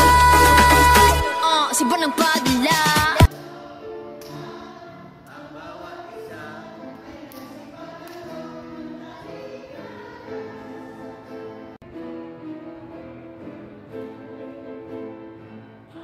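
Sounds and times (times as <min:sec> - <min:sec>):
women's choir singing: 0:00.0 - 0:11.8.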